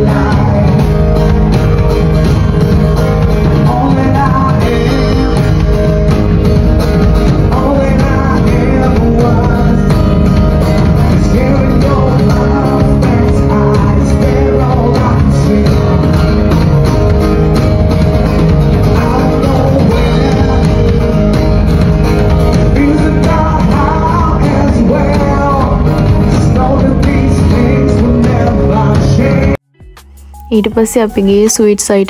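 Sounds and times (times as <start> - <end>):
man singing: 0.0 - 1.4, 3.4 - 6.0, 7.2 - 16.4, 18.7 - 21.2, 22.5 - 29.6
electric bass: 0.0 - 31.6
acoustic guitar: 0.0 - 32.0
drum kit: 0.0 - 32.0.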